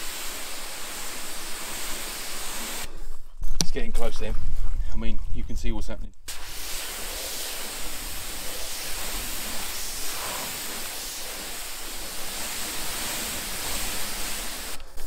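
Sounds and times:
pressure washer spraying: 0.0s - 2.9s, 6.3s - 15.0s.

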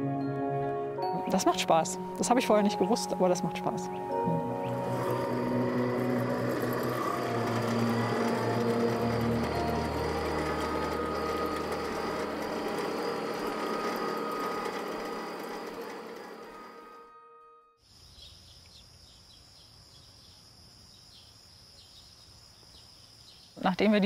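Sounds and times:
low drone: 0.0s - 17.5s
held tones: 2.0s - 17.6s
rattling machine-like pulse: 2.6s - 17.1s.

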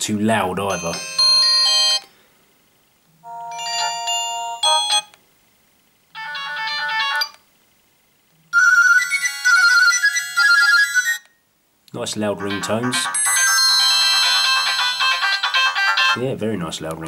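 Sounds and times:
phone ringtone melodies: 0.7s - 2.1s, 3.2s - 5.1s, 6.2s - 7.4s, 8.5s - 11.3s, 12.4s - 16.2s.

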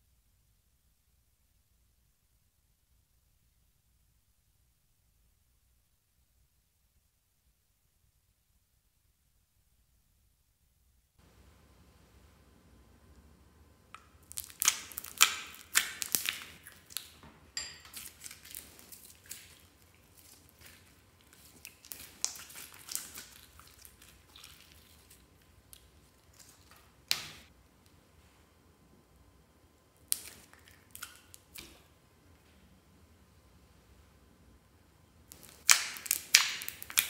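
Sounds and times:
slime squelching and popping: 13.9s - 17.2s, 17.8s - 27.5s, 30.0s - 31.9s, 35.3s - 37.0s.

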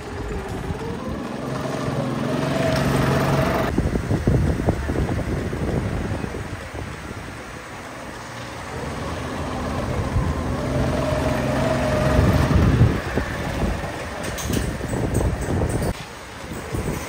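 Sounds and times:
go-kart engine passing by: 0.0s - 3.8s, 8.1s - 14.5s.

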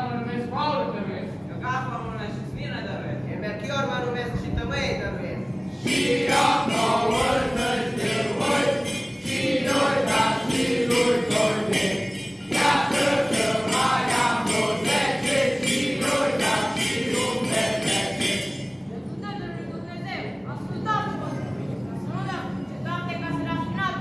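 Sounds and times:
group singing a carol: 5.7s - 18.8s
small bells shaken: 5.7s - 20.4s.

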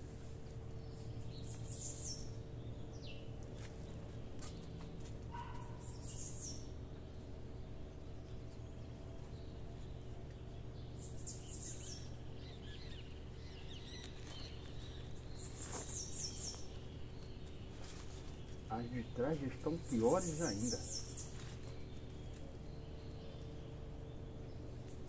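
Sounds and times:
steady low hum: 0.0s - 25.0s
small bird chirping: 0.8s - 25.0s
rustling of soil and roots: 14.0s - 22.4s.

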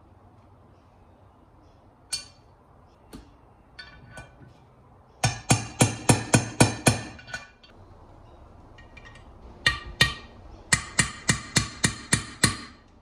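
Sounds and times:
hammer tapping on metal: 5.2s - 7.4s, 8.8s - 12.8s.

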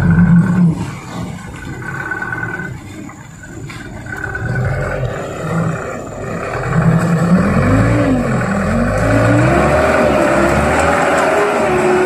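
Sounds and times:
diesel truck engine revving: 0.0s - 12.0s.

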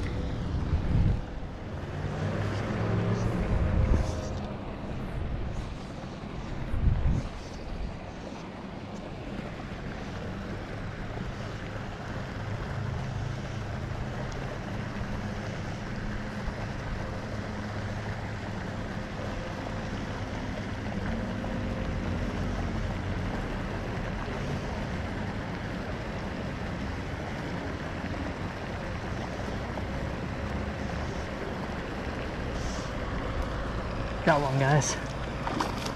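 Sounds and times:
wind buffeting microphone: 0.0s - 1.8s, 2.6s - 8.1s
distant motor hum: 0.0s - 6.8s.

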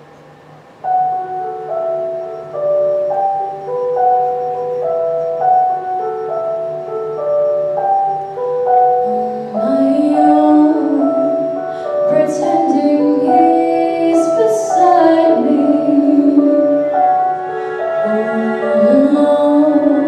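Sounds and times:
instrumental accompaniment: 0.0s - 20.0s
woman singing slow ballad: 9.0s - 17.1s, 18.0s - 20.0s.

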